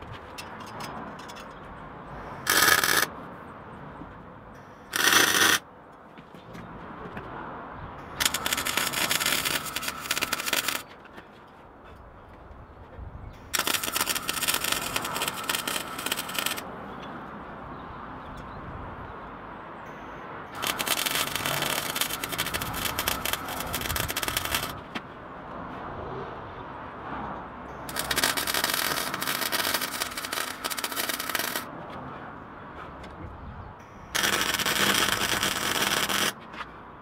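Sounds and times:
arc welder crackling: 2.2 - 3.1, 4.8 - 5.6, 8.1 - 10.9, 13.4 - 16.7, 20.5 - 24.9, 27.8 - 31.7, 33.9 - 36.4.

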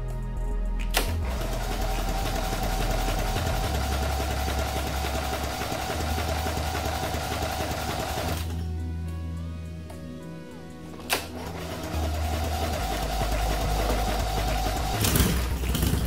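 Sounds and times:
lawn tractor engine running: 0.9 - 8.6, 11.0 - 16.0.

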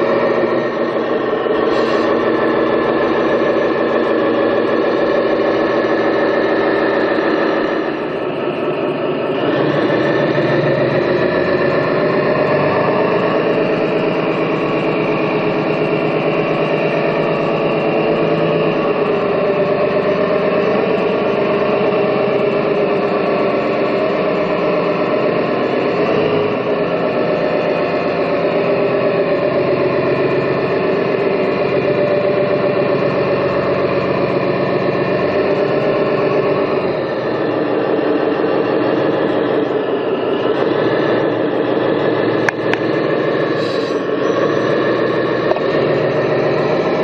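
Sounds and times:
toy truck motor drone: 0.0 - 47.0
hiss: 43.6 - 44.0.

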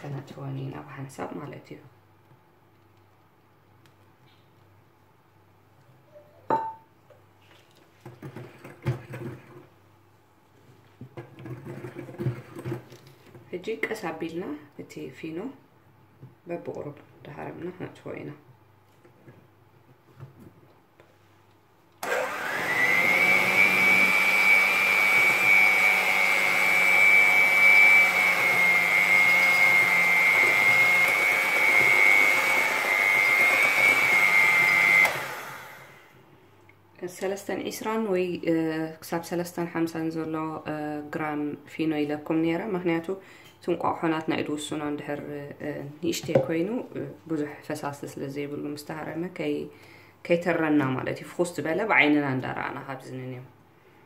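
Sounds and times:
electric hand mixer whining: 22.0 - 36.2.

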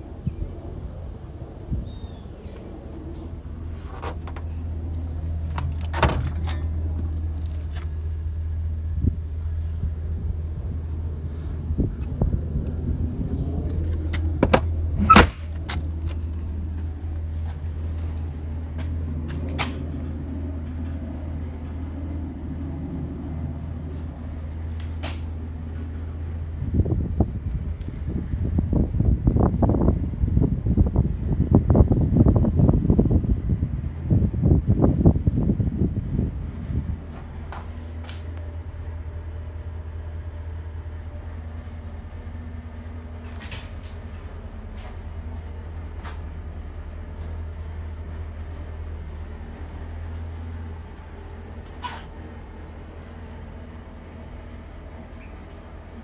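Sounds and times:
low engine hum: 0.0 - 56.0
truck door metal clunk: 5.5 - 6.8, 14.4 - 15.8.

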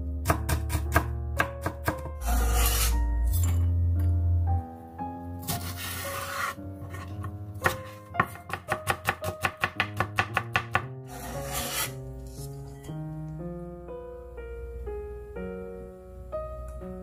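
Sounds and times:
soft piano music: 0.0 - 17.0
blade rasping across board: 2.2 - 3.0, 5.6 - 7.0, 11.1 - 12.0
knife chopping on wooden board: 5.4 - 12.0.

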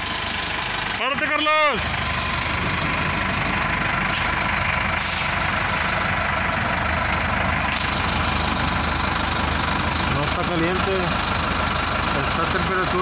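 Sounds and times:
bus diesel engine idling: 0.0 - 13.0
air hiss: 5.0 - 6.0.

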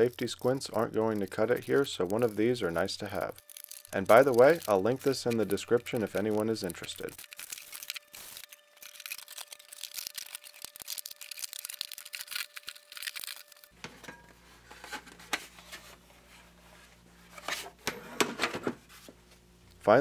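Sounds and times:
plastic film crinkling rustle: 0.0 - 13.8.

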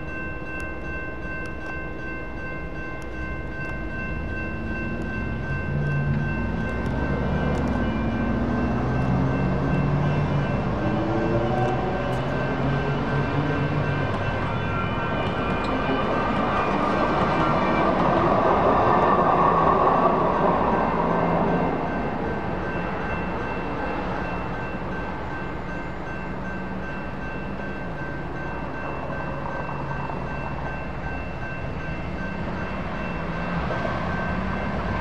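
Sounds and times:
crossing bell ringing: 0.0 - 35.0
light rail train passing: 0.0 - 35.0
road vehicles pulling away: 4.2 - 21.8.

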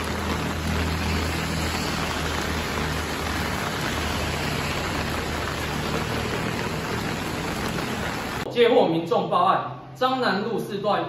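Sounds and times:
heavy rain pouring: 0.0 - 8.5.

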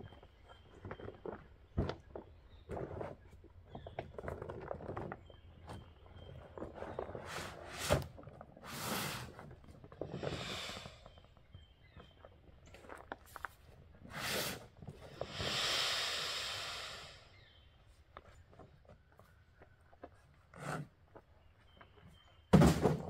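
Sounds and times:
bags rustling and scraping: 6.4 - 11.1.

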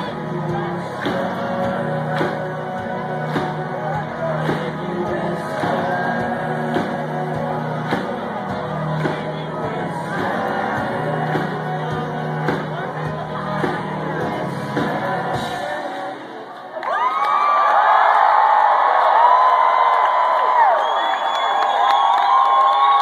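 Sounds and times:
steady bass notes: 0.0 - 15.9
live indie rock band with singing: 0.0 - 16.8.

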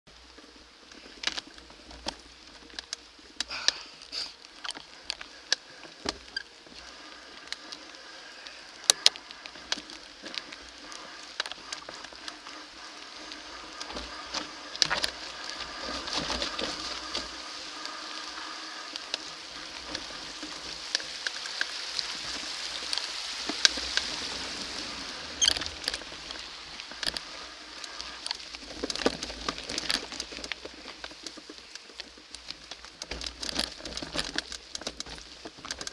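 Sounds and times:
bike tyres crunching over dirt: 0.1 - 35.9
buzzing hiss: 3.6 - 28.8
bike rattling and knocking: 8.6 - 35.9.

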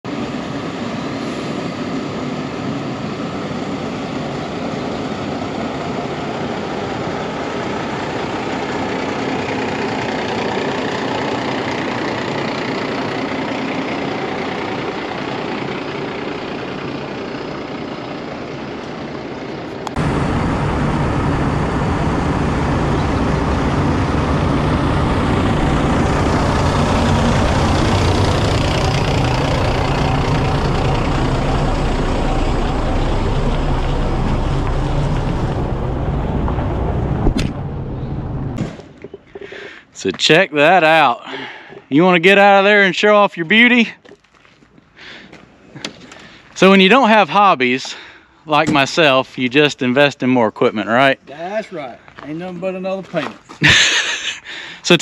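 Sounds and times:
diesel truck engine idling: 0.1 - 40.0.

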